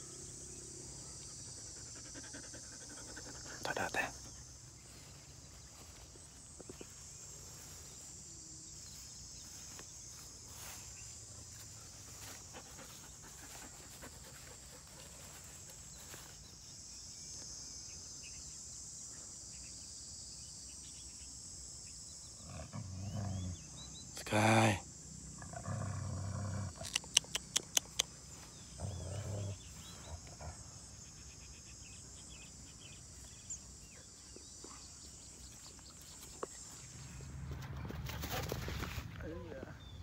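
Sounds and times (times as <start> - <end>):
dog growling: 22.4 - 23.8, 25.4 - 28.0, 28.7 - 30.8.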